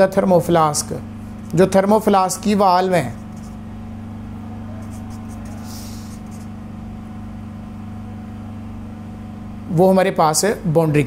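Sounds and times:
steady low hum: 0.0 - 11.0
marker writing on whiteboard: 3.1 - 3.7, 4.7 - 6.6.

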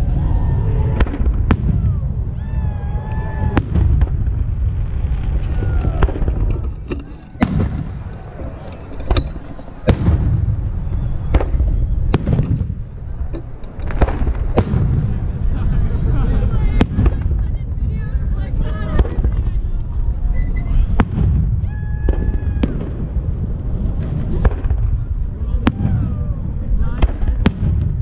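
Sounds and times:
low rumble: 0.0 - 28.0
fireworks shells bursting: 5.4 - 10.3.

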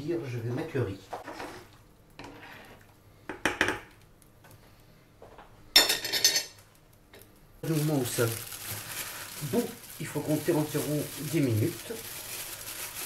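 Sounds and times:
pots and utensils clattering: 5.8 - 6.6.

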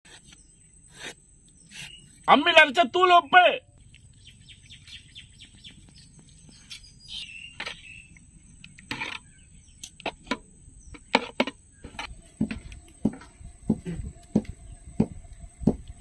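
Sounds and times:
sharp knocks and clicks: 9.8 - 15.9
high insect drone: 11.9 - 16.0.

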